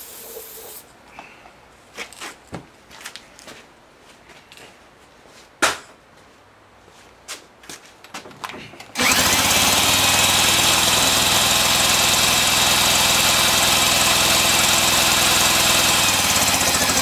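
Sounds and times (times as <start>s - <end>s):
electric drill whining: 9.0s - 17.0s
engine chugging turning over: 9.0s - 17.0s.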